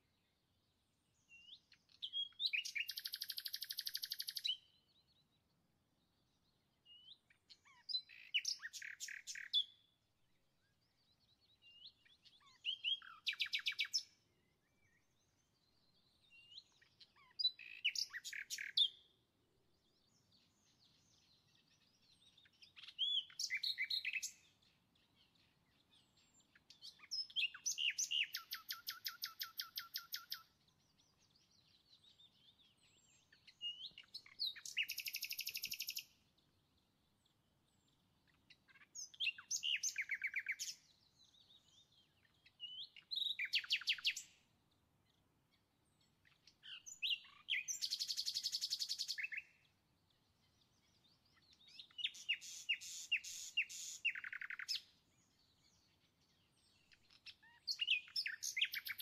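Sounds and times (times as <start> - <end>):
songbird trilling: 1.9 - 4.7, 7.6 - 9.8, 12.4 - 14.1, 16.8 - 19.0, 22.4 - 24.5, 26.4 - 30.5, 32.2 - 36.2, 38.7 - 41.8, 42.4 - 44.3, 46.5 - 49.6, 51.4 - 54.9, 56.9 - 59.0.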